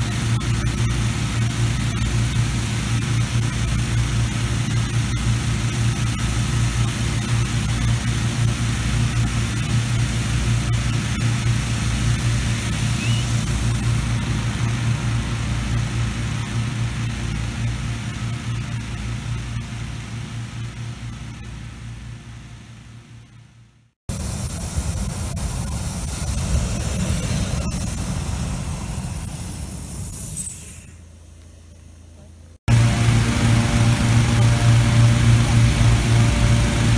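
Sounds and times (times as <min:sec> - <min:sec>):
propane burner roaring: 0:00.0 - 0:23.0, 0:24.1 - 0:31.2, 0:32.2 - 0:36.9
inflator fan running: 0:00.0 - 0:30.3, 0:31.0 - 0:36.9
rush of air: 0:24.1 - 0:31.0.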